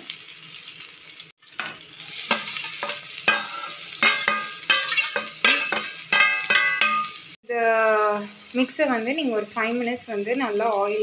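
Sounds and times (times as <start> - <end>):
garlic sizzling in hot oil: 0.0 - 11.0
spoon clinking against metal pan: 1.6 - 7.3.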